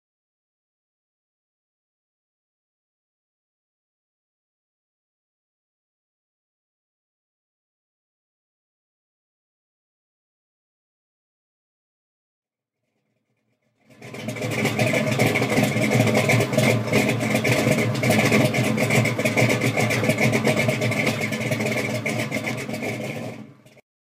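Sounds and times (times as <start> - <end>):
car engine running roughly: 12.9 - 23.8.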